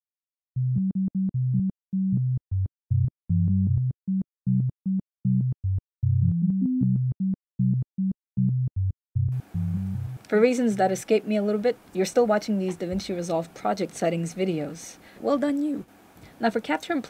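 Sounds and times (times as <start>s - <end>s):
short low clipped music notes: 9.3s - 10.2s.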